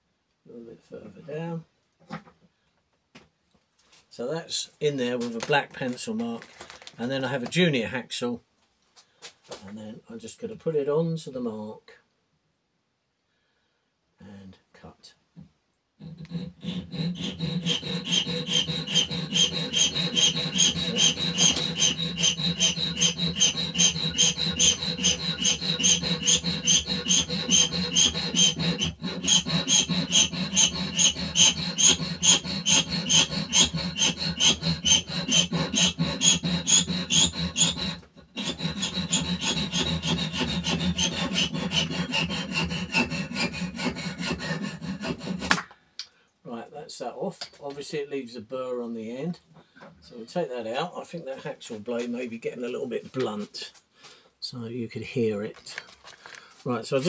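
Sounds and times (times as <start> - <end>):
hacksaw cutting metal: 16.0 - 45.7.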